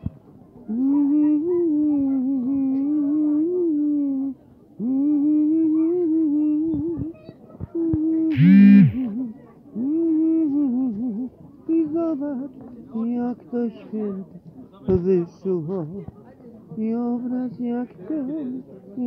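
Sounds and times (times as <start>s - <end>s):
person humming: 8.3s - 9.2s
short rising tone: 8.4s - 9.0s.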